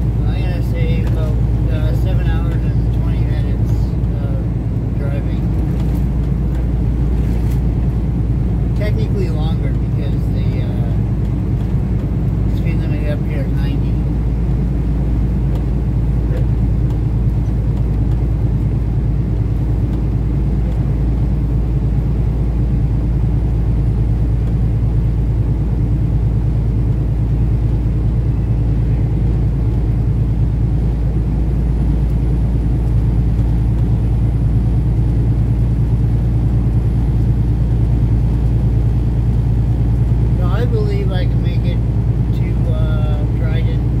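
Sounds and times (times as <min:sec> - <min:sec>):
road rumble: 0:00.0 - 0:44.0
truck engine drone: 0:00.0 - 0:44.0.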